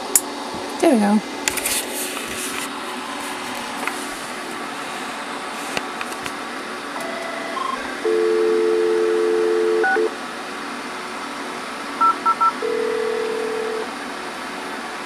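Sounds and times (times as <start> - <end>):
dial tone: 7.0 - 10.1, 12.0 - 13.9.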